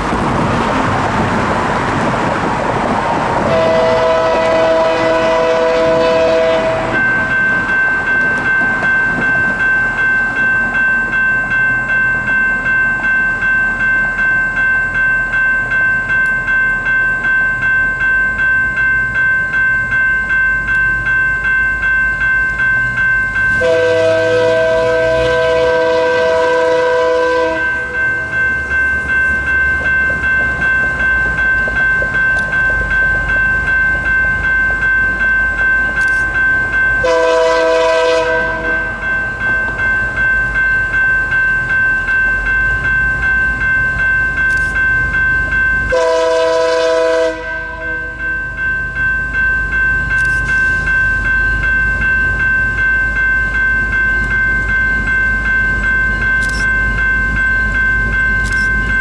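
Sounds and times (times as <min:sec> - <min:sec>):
crossing bell ringing: 0:00.0 - 0:59.0
train rumbling: 0:00.0 - 0:59.0
locomotive air horn blasts: 0:03.5 - 0:07.0, 0:23.6 - 0:27.9, 0:37.0 - 0:38.9, 0:45.9 - 0:48.1.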